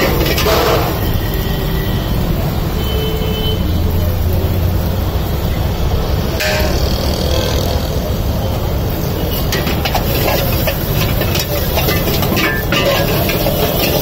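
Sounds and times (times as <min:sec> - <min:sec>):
gas burner roaring: 0:00.0 - 0:14.0
street traffic: 0:00.0 - 0:14.0
vehicle horn toot: 0:02.8 - 0:03.7.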